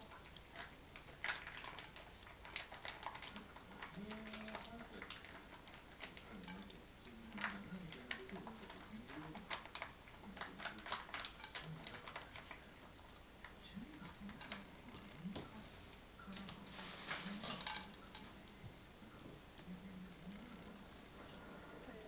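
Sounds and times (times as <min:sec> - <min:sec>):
cats chewing and lapping food: 0:00.0 - 0:22.0.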